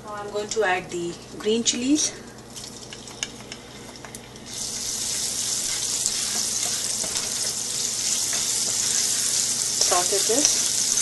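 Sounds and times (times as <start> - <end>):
chilies sizzling in hot oil: 2.5 - 11.0.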